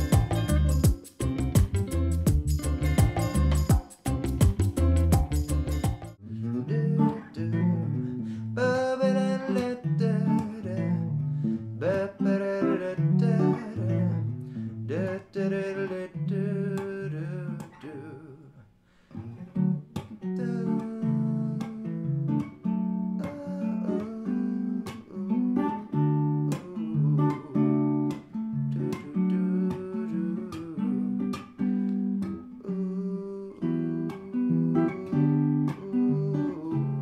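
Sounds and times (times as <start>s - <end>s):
plucked string melody: 0.0s - 18.2s.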